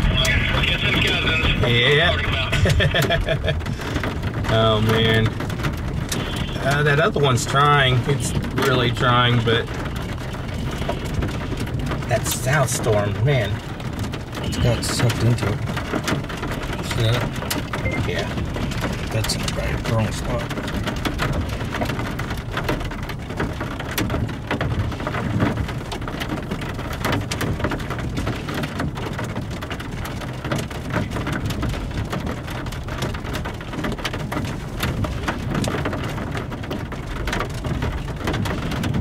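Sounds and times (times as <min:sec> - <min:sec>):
constant low rumble: 0:00.0 - 0:39.0
rain drops hitting: 0:00.0 - 0:39.0.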